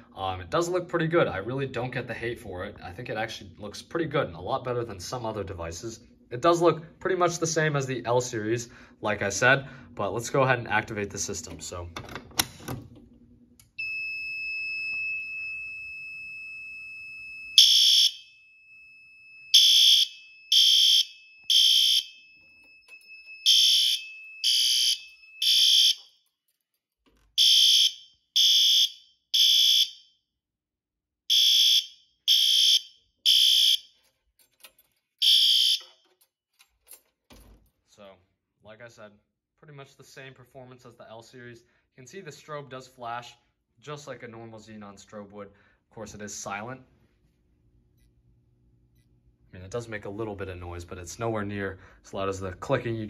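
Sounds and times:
alarm horn blasts: 31.3s - 33.8s.

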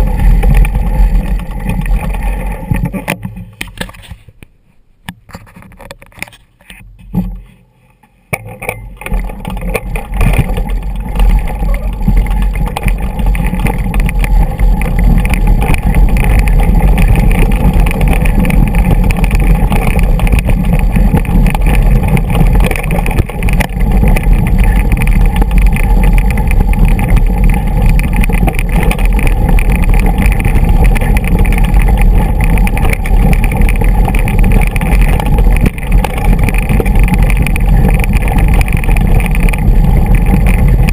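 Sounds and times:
bike tyres crunching over stones: 0.0s - 4.3s, 8.4s - 40.9s
wind rumble on microphone: 0.0s - 4.3s, 5.3s - 40.9s
bike rattling: 0.0s - 4.4s, 5.2s - 40.9s.

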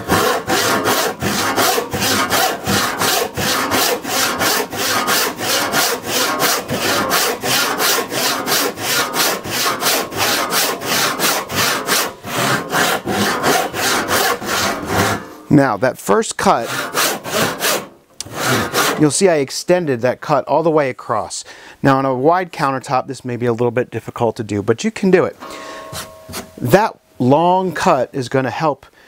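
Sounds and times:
hand saw cutting wood: 0.0s - 15.4s, 16.4s - 19.1s.

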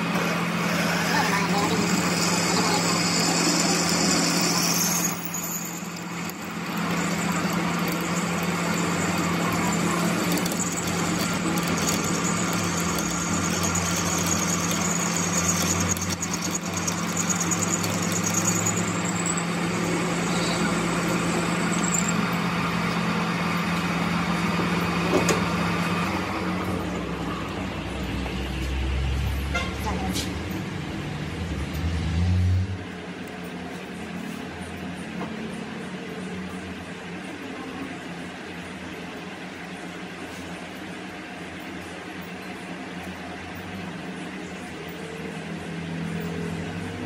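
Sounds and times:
lathe motor hum: 0.0s - 29.2s
high cutting whine: 0.0s - 29.3s.

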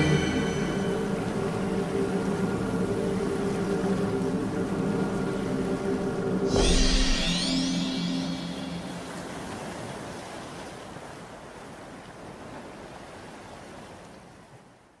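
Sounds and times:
steady wash of noise: 0.0s - 10.6s.

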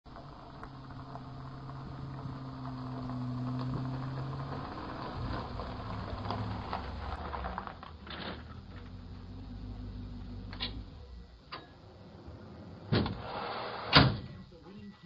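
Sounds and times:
truck engine hum: 0.0s - 13.4s
tyres crunching on gravel: 0.1s - 11.1s.

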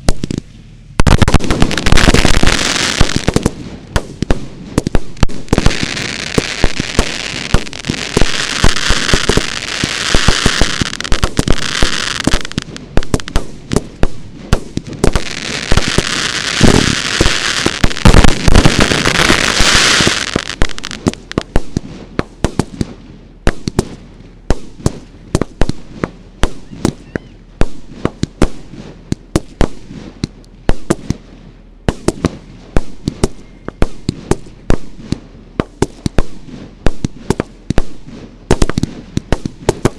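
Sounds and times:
fireworks hissing: 0.0s - 22.9s
fireworks banging: 0.0s - 31.2s, 31.9s - 39.9s.

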